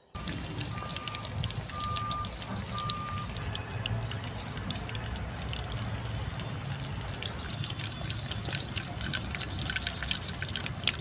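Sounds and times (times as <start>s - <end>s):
bird chirping: 0.0s - 3.4s, 7.1s - 10.5s
chicken sizzling in hot oil: 0.2s - 11.0s.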